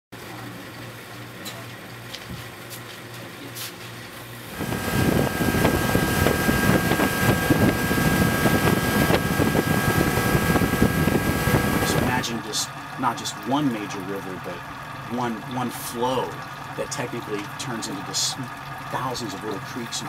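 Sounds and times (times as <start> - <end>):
outboard motor running: 0.2 - 20.0
low steady hum: 4.1 - 20.0
wind on microphone: 4.5 - 12.2
water rushing: 4.5 - 20.0.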